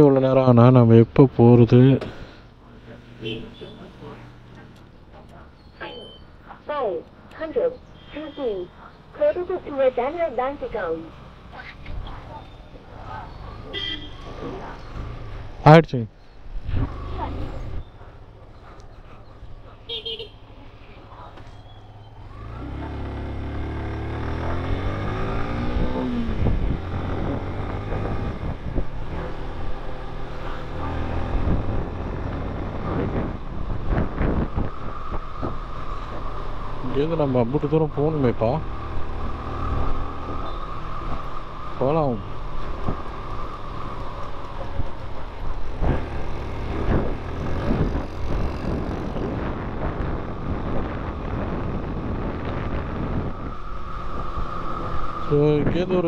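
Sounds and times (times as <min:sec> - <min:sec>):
motorcycle engine revving: 0:01.7 - 0:05.2, 0:10.7 - 0:15.7, 0:16.5 - 0:18.2, 0:21.5 - 0:56.0
wind on microphone: 0:24.8 - 0:29.8, 0:30.6 - 0:37.0, 0:42.4 - 0:56.0.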